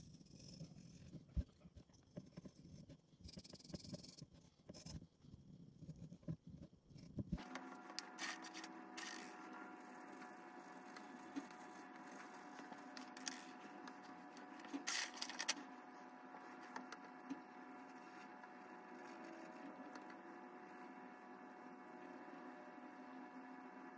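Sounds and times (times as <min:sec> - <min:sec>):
electrical hum: 0:00.0 - 0:23.9
paper and pencils rustling: 0:07.4 - 0:21.2.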